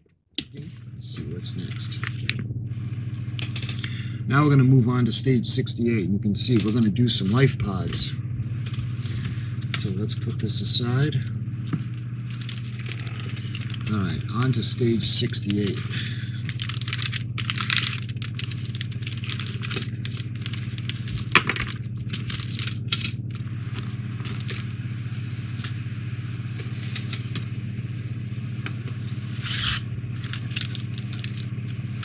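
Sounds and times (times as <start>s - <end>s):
steady low hum: 0.0s - 32.0s
plastic and metal parts clinking: 16.4s - 23.2s, 29.5s - 31.5s.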